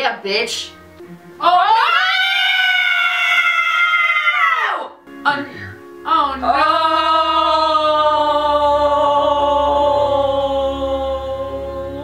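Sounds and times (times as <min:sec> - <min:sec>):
woman's long drawn-out cry: 0:01.6 - 0:04.9.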